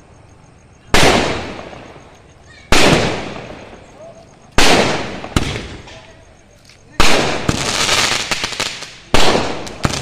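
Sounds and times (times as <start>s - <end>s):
firework shells bursting: 1.0s - 6.2s.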